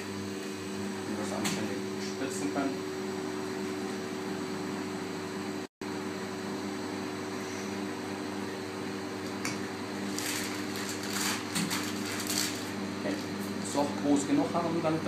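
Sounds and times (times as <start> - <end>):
machine humming: 0.0 - 15.0
piping bag rustling scrapes: 10.0 - 13.6.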